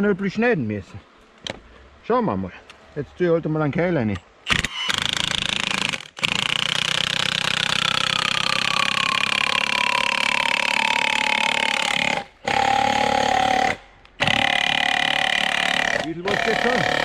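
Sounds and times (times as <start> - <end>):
chainsaw cutting wood: 4.5 - 17.0.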